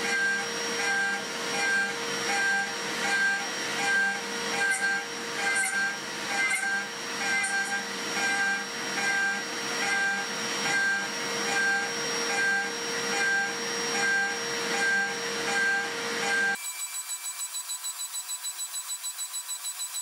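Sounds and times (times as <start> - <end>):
end mill cutting steel: 0.0 - 16.6
milling spindle whine: 0.0 - 20.0.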